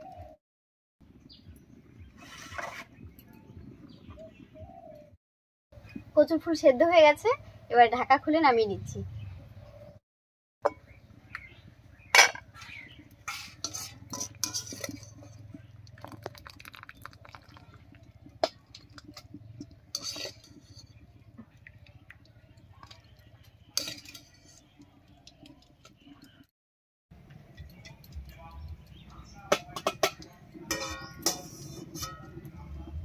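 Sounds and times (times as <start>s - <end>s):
metal kitchenware clinking: 12.2s - 16.3s, 18.4s - 21.3s, 22.8s - 24.8s, 27.5s - 33.0s.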